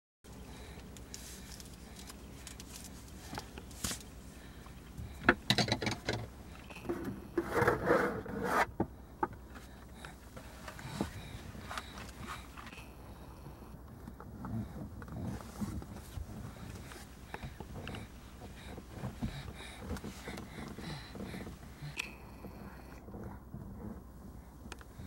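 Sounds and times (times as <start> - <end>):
low outdoor rumble: 0.3 - 25.0.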